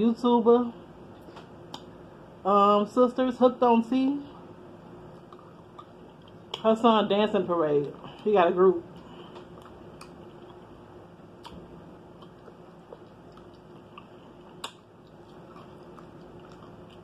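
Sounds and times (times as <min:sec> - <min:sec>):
quiet chewing: 0:04.3 - 0:06.6, 0:09.0 - 0:10.8, 0:11.4 - 0:17.0.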